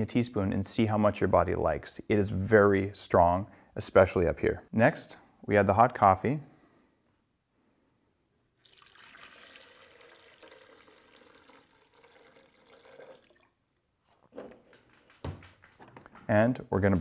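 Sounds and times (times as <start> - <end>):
coffee pouring into a jar: 8.6 - 13.6.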